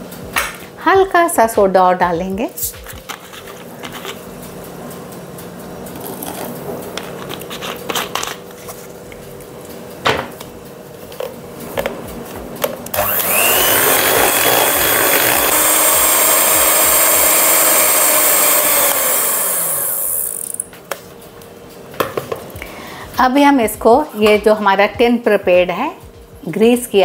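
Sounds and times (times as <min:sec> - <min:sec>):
electric hand mixer beating batter: 0:12.9 - 0:20.6.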